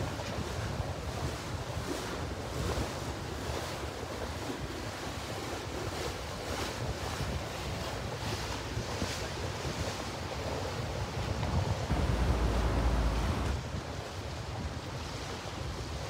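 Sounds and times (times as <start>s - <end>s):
wind rumbling on microphone: 0.0s - 16.0s
motorboat engine: 11.4s - 13.8s.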